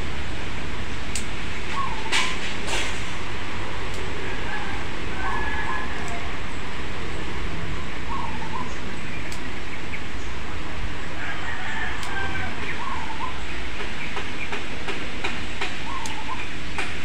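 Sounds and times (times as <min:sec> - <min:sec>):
steady rumbling background noise: 0:00.0 - 0:17.0
pruning scissors snipping twigs: 0:01.1 - 0:01.4, 0:03.8 - 0:06.3, 0:09.2 - 0:09.6, 0:11.9 - 0:12.6, 0:13.8 - 0:17.0
bird chirping: 0:01.7 - 0:02.3, 0:05.2 - 0:10.4, 0:12.6 - 0:14.6, 0:15.8 - 0:16.8.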